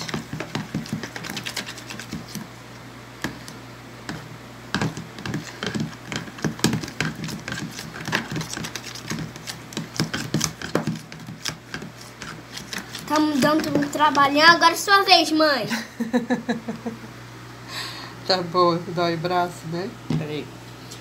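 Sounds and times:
plastic spoon scraping a tub: 0.0s - 2.5s, 4.1s - 14.4s.

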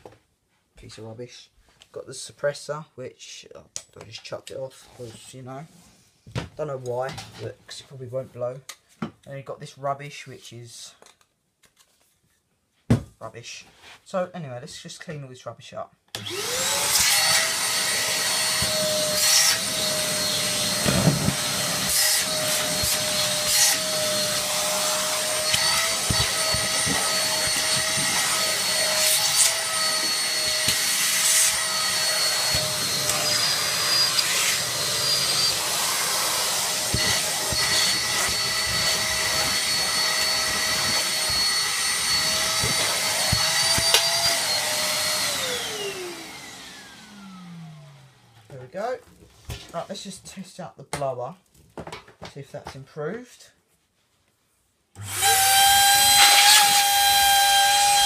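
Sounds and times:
vacuum cleaner whining: 16.2s - 48.6s, 55.0s - 58.0s.

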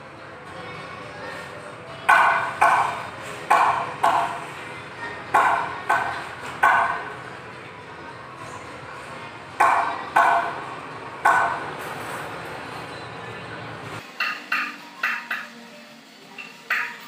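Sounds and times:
hammer striking metal: 2.1s - 4.4s, 5.3s - 7.2s, 9.6s - 10.6s, 11.2s - 11.8s, 14.0s - 15.6s, 16.4s - 17.0s.

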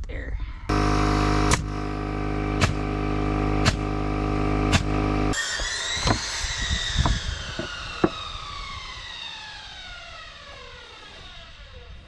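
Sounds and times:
power saw winding down: 0.7s - 12.0s
knocks of wood or tools: 6.0s - 6.2s.

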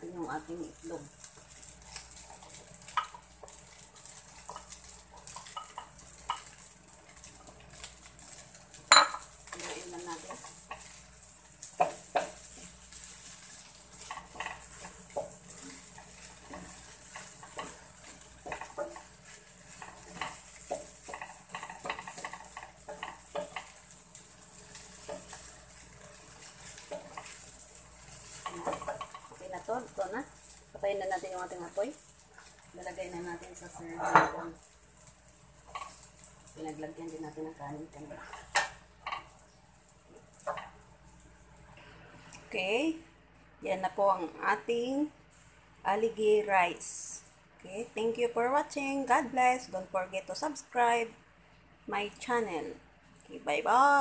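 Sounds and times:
rice sizzling: 0.0s - 54.0s
wooden spatula scraping pan: 9.4s - 34.5s.

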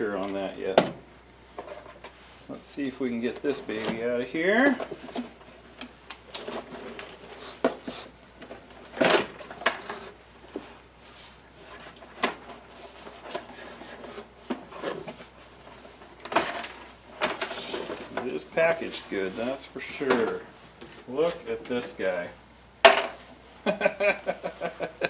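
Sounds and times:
cardboard packing scraping and rustling: 6.3s - 19.6s.

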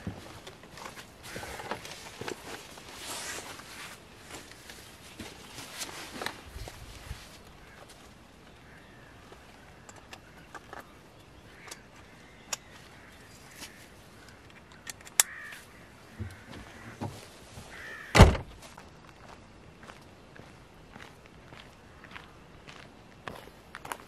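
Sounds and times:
crows cawing: 1.2s - 1.8s, 7.6s - 10.4s, 11.4s - 14.5s, 15.2s - 18.2s
car tailgate slamming shut: 18.1s - 18.6s.

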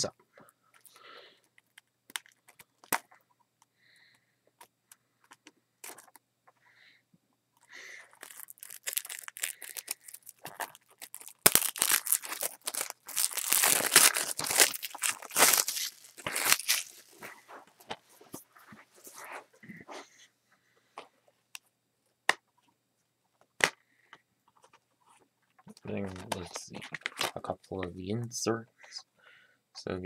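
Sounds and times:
plastic wrap crinkling: 7.7s - 18.4s
fingernails picking at plastic wrap: 8.1s - 17.3s.

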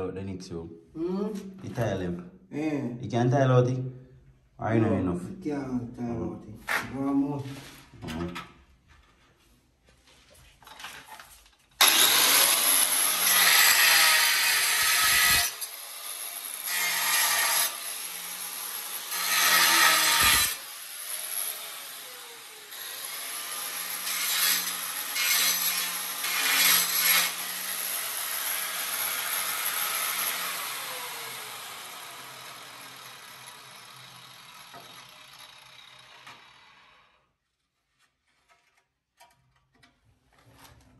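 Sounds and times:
harsh scraping and grinding of tiles: 37.7s - 40.9s.

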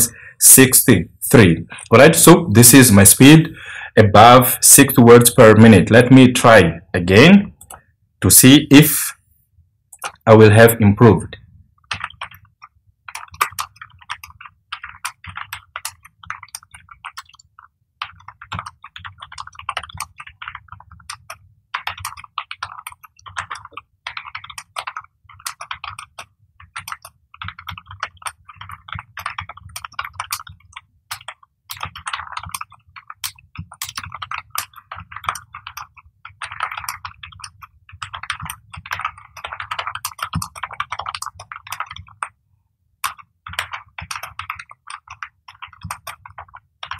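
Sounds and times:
fast typing on keyboard: 9.9s - 46.9s.

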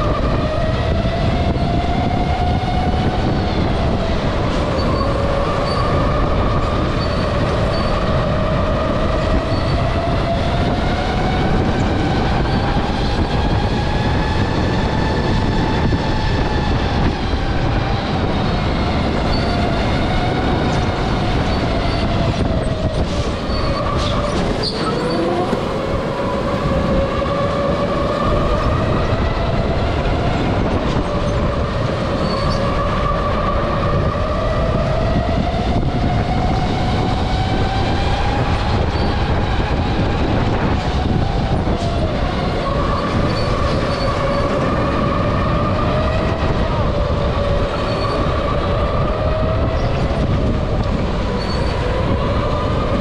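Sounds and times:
steady rushing noise: 0.0s - 53.0s.

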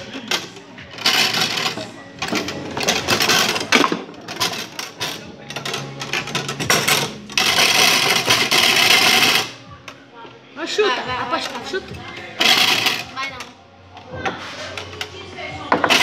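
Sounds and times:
foosball rapid clacking and rattling: 0.2s - 9.6s.

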